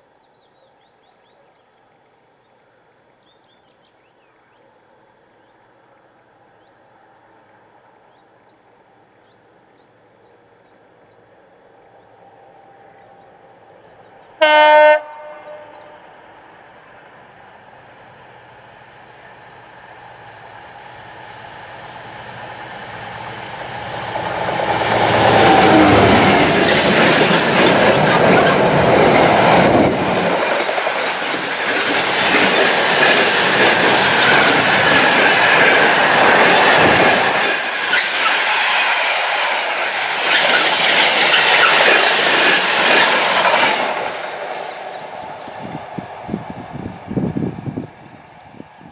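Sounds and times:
diesel locomotive engine passing: 6.9 - 48.9
locomotive horn blast: 14.4 - 16.1, 24.7 - 26.5
wagons clattering over rail joints: 26.0 - 38.8, 39.8 - 44.8.

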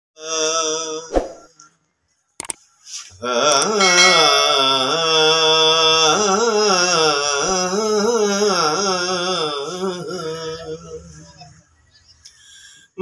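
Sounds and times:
man singing: 0.2 - 1.4, 3.2 - 11.4.

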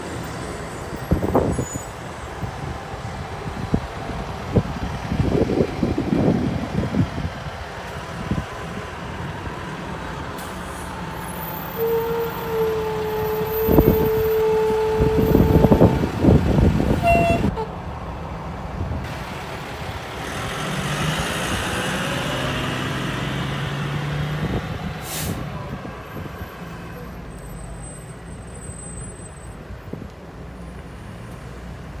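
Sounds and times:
heavy truck engines rumbling: 0.0 - 32.0.

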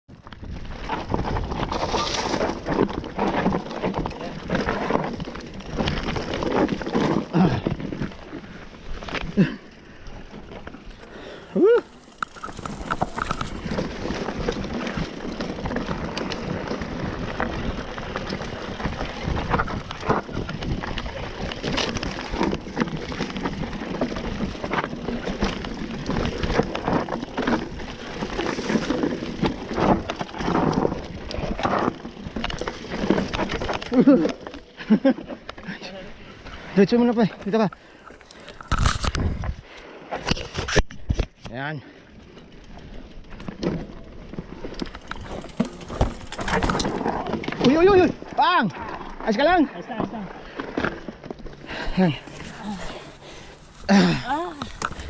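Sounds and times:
mountain bike clattering over rocks: 0.1 - 39.5, 40.2 - 55.0
tyres crunching on gravel: 11.8 - 36.4.

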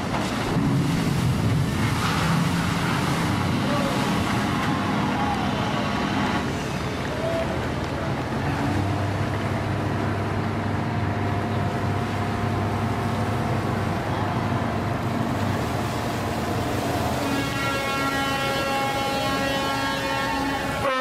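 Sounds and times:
water churning and washing: 0.0 - 21.0.

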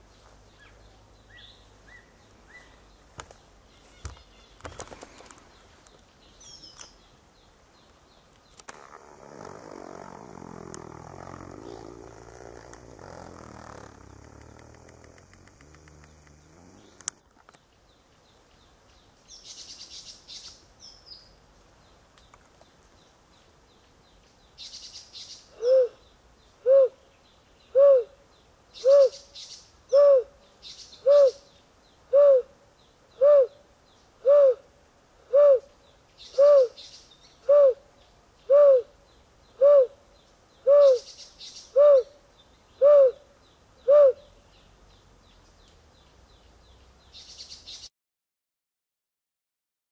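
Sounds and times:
bird low soft hoots: 25.6 - 26.0, 34.2 - 34.7, 35.3 - 35.7, 36.3 - 36.8, 37.4 - 37.8, 38.5 - 38.9, 39.6 - 40.0, 40.6 - 41.1, 42.8 - 44.3.

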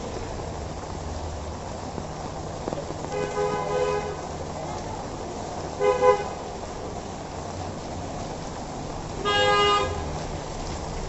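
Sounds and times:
rain hissing: 0.0 - 11.0
car horn honking: 9.2 - 10.0.

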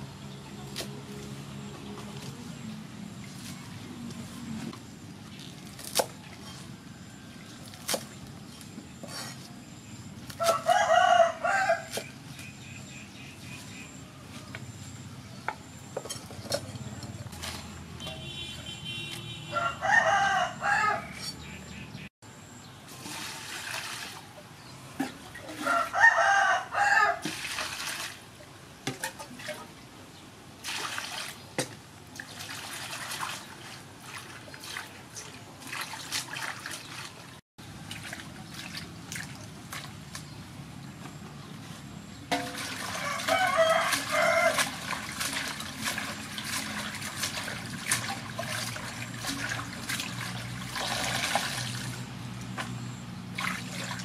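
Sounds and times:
rooster crowing: 10.4 - 11.9, 19.5 - 21.2, 25.6 - 27.2, 42.9 - 44.7
water splashing in metal bowl: 27.2 - 28.2, 30.6 - 31.4, 32.1 - 40.0, 42.3 - 52.0, 53.3 - 54.0.

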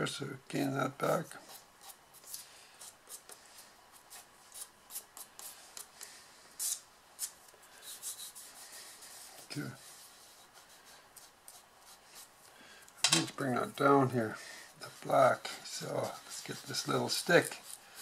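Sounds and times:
pastel scratching on paper: 1.4 - 5.9, 6.6 - 12.4.

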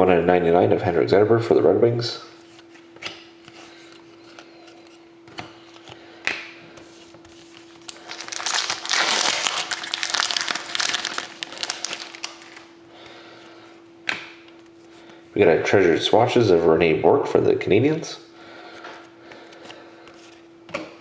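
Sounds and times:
faint steady hum: 0.0 - 21.0
foil wrapper tearing and crinkling: 7.5 - 12.7.

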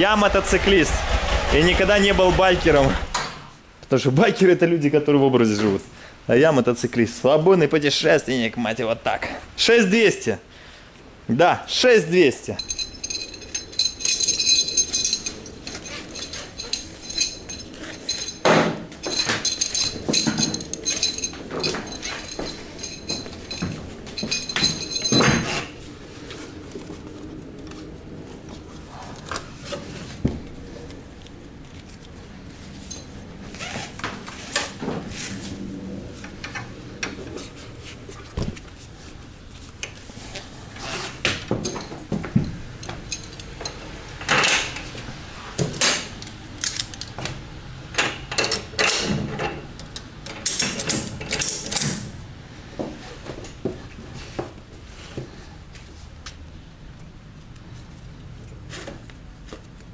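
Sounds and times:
metal strap hooks clinking: 12.5 - 25.8, 41.6 - 43.8, 45.9 - 47.2
ringing metal knocks: 12.6 - 25.6.

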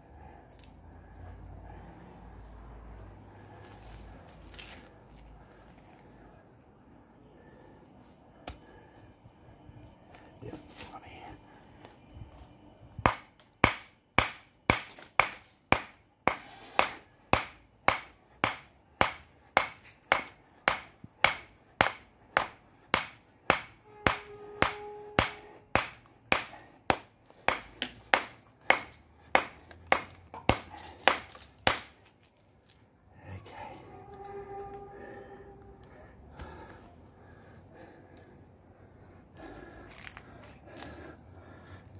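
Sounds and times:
hammer striking stone: 13.1 - 32.0.

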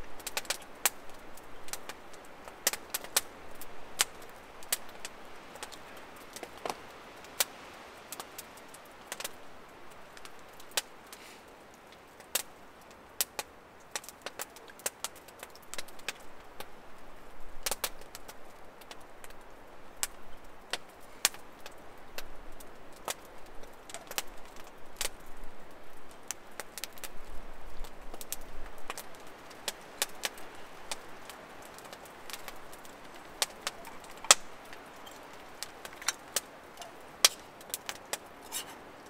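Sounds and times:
campfire crackling: 0.0 - 39.0
faint steady hiss: 0.0 - 39.0
fire popping: 0.0 - 39.0.

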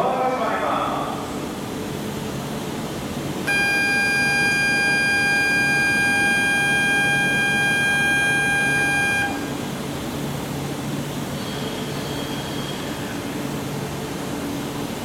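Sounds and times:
electronic buzzing departure signal: 3.5 - 9.7.

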